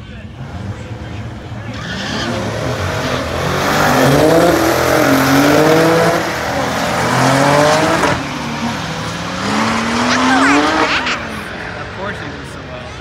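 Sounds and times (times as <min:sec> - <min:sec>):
car engines at full throttle: 0:00.0 - 0:13.0.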